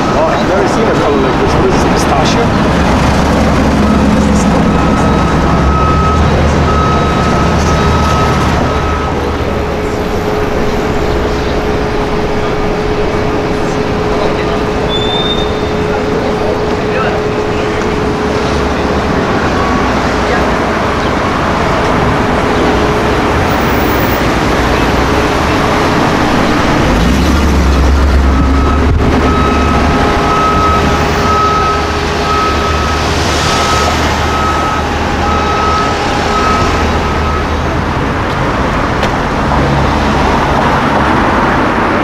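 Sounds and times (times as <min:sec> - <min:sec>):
car engine rumbling: 0:00.0 - 0:42.0
city street traffic: 0:00.0 - 0:42.0
high beeps: 0:03.6 - 0:11.8, 0:22.5 - 0:37.6.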